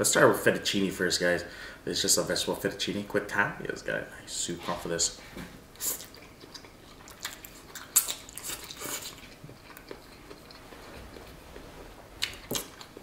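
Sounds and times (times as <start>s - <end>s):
person chewing: 5.7s - 13.0s.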